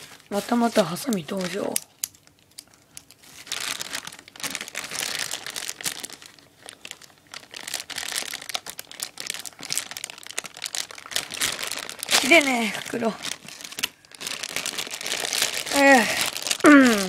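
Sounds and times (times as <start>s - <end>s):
plastic packaging crinkling: 0.0s - 17.0s
scissors cutting plastic: 0.6s - 3.2s.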